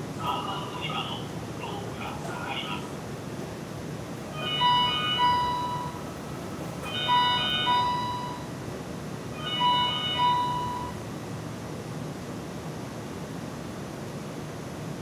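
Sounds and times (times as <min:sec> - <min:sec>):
electronic warning chime: 0:04.4 - 0:06.0, 0:07.0 - 0:08.5, 0:09.4 - 0:11.0.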